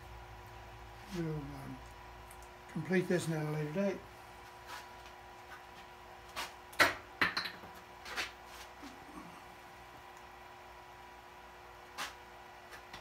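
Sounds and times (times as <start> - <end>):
faint steady hum: 0.0 - 13.0
wooden objects knocking and clattering: 6.8 - 7.8.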